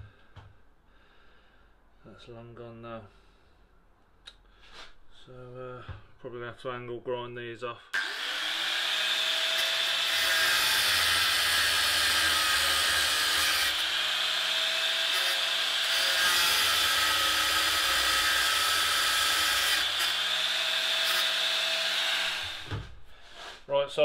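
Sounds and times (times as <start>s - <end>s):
angle grinder grinding steel: 8.0s - 22.8s.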